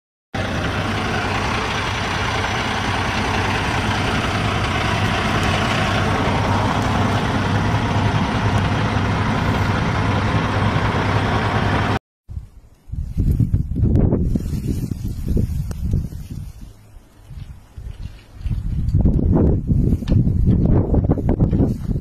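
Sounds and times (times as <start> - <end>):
diesel truck engine idling: 0.4 - 12.0.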